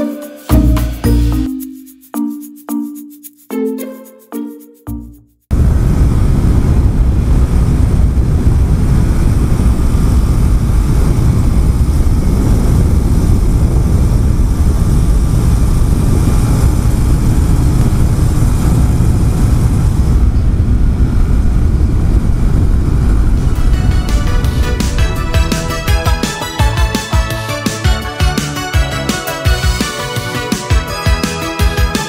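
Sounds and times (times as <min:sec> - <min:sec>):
wind rushing: 0:05.5 - 0:30.7.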